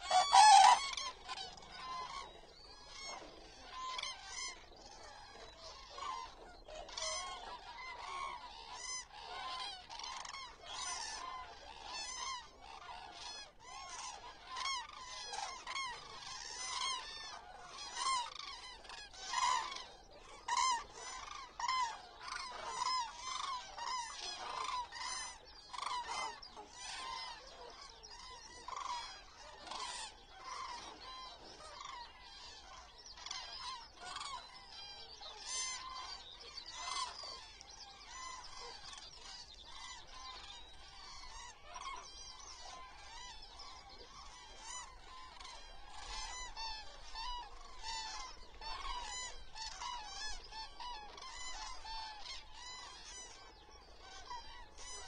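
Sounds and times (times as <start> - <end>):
cranes trumpeting calls: 0.0 - 55.0.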